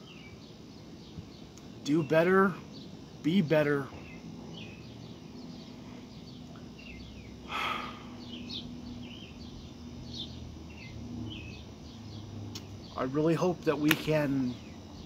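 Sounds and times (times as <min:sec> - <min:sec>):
faint steady hum: 0:00.0 - 0:15.0
small birds chirping: 0:00.0 - 0:15.0.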